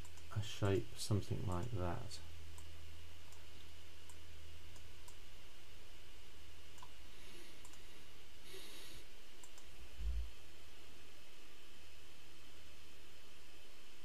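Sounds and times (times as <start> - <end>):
low electrical hum: 0.0 - 14.0
computer mouse clicking: 1.5 - 1.7, 6.8 - 7.0, 7.6 - 7.8, 9.4 - 9.7.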